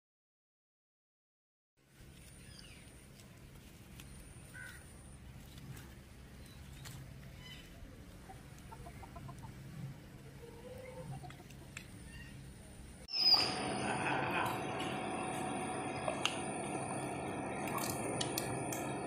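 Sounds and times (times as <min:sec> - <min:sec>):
chicken clucking: 0:07.4 - 0:11.8
low steady hum: 0:11.7 - 0:19.0.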